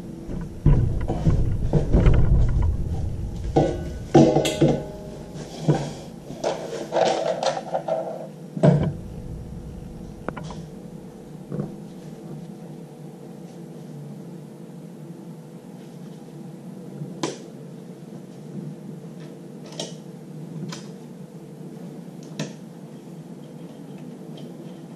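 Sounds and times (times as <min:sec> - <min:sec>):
metal knocks and rattles: 0:00.0 - 0:08.0, 0:08.6 - 0:12.0
thump: 0:00.3 - 0:06.2, 0:08.6 - 0:11.8.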